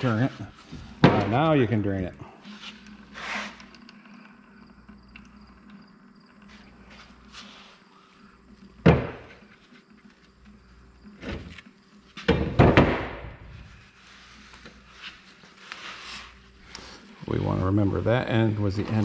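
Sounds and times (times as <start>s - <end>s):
metal knocks and clunks: 0.8s - 1.4s, 8.8s - 9.4s, 12.2s - 13.4s.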